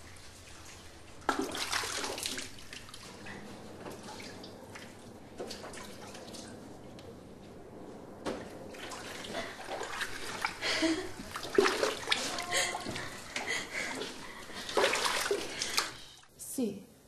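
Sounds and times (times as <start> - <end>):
water splashing from a washbasin: 0.0 - 6.9, 8.3 - 16.3
water dripping: 8.7 - 16.2.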